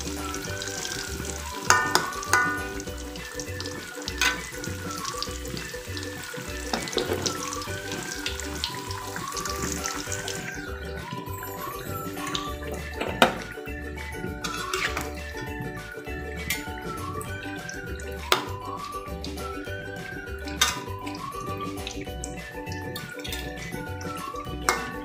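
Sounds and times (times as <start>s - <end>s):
food sizzling in hot oil: 0.0s - 12.6s
background music with beat: 0.0s - 25.0s
metal spatula clinking on wok: 1.7s - 2.8s.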